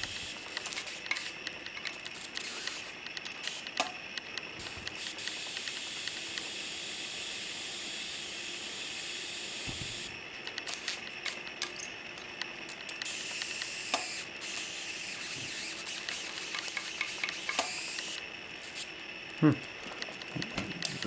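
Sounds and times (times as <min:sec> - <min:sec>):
small electric snaps: 0:00.0 - 0:06.5, 0:09.6 - 0:18.9.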